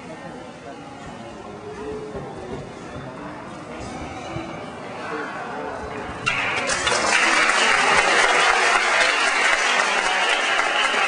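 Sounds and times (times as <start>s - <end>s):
crowd applauding: 6.2s - 11.0s.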